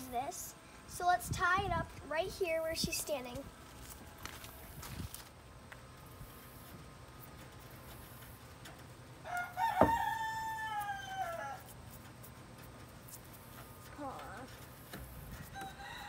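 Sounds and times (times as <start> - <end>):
rooster crowing: 9.2 - 11.7, 15.4 - 16.0.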